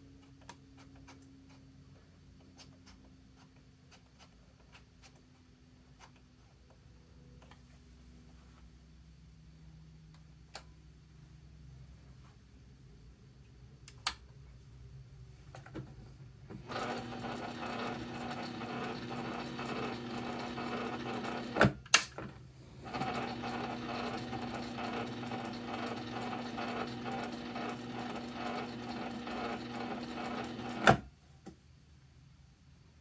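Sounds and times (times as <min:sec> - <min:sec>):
sewing machine stitching: 0:16.5 - 0:31.1.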